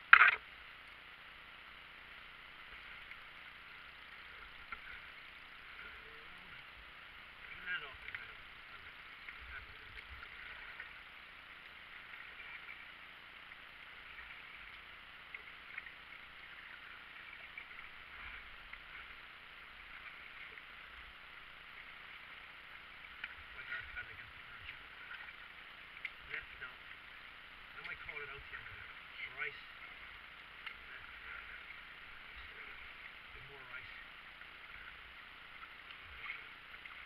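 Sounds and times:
paddle splashing in water: 7.4s - 27.1s.

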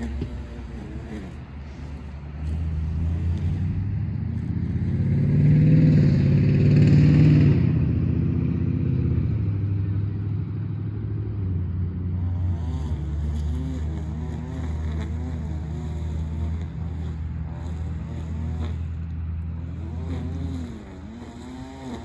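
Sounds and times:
vehicle engine passing by: 0.0s - 22.0s.

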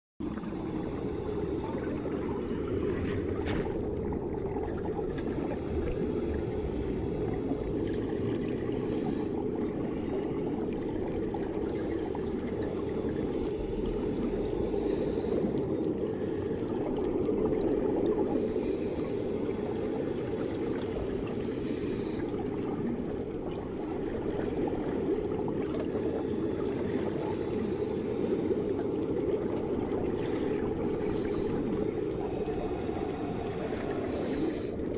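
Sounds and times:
muffled underwater water wash: 0.2s - 34.9s.

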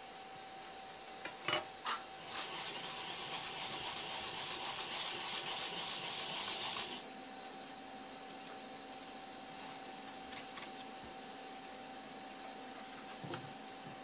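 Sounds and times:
root grated on metal grater: 2.2s - 7.0s.

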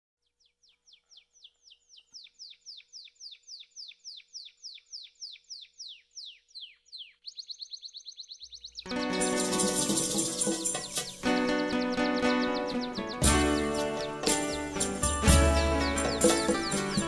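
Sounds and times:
bird whistling song: 0.6s - 8.9s, 9.9s - 17.0s.

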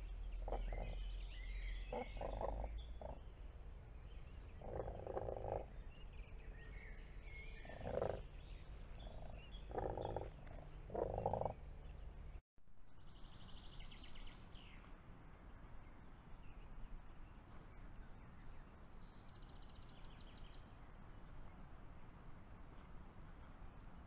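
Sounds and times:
songbirds singing: 0.0s - 12.4s, 13.0s - 21.6s
frogs croaking: 0.4s - 1.0s, 1.9s - 3.2s, 4.6s - 5.7s, 7.7s - 8.2s, 9.0s - 11.5s.

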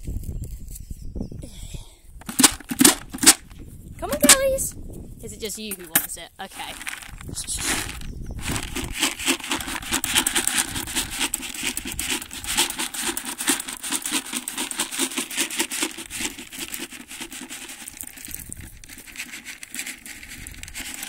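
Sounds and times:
feed pellets pouring from bucket: 6.6s - 21.0s.

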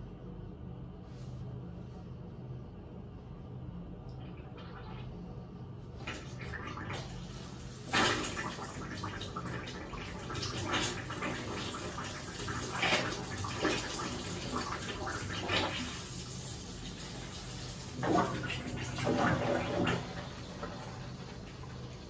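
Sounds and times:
water running into bathtub: 6.0s - 22.0s.

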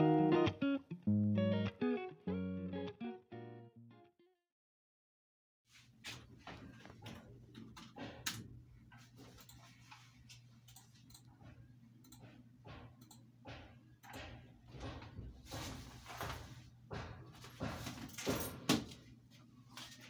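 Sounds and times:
computer mouse clicks: 10.6s - 11.4s, 12.0s - 12.4s.

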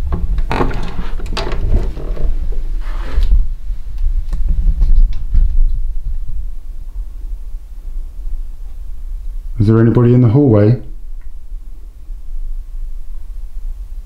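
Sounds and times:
rustling: 0.0s - 9.6s.

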